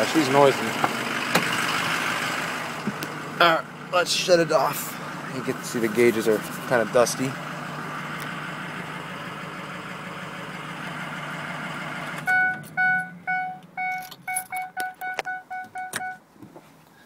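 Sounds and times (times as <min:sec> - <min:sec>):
diesel engine idling: 0:00.0 - 0:13.9
dashboard warning chime beeping: 0:12.3 - 0:16.2.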